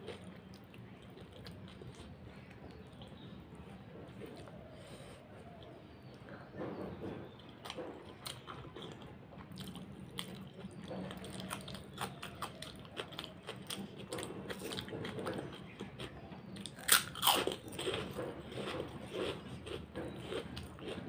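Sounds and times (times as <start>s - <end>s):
person chewing and smacking: 0.0s - 3.5s, 7.3s - 21.0s.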